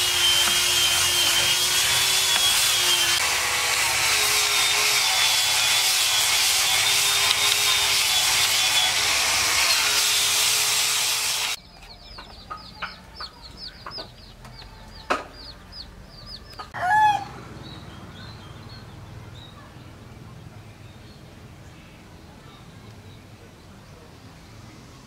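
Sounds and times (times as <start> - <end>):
hand rubbing wooden carving: 0.0 - 3.2
birds chirping: 11.6 - 24.8.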